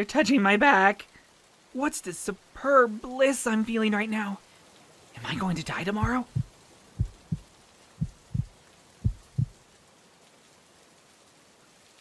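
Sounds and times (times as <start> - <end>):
faint steady hiss: 0.0 - 12.0
heartbeat thumps: 6.0 - 9.6.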